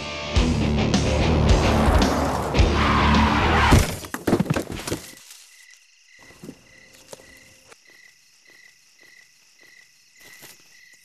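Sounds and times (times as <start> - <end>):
music: 0.0 - 3.7
crickets chirping: 4.0 - 11.0
faint rustling in leaves: 4.7 - 11.0.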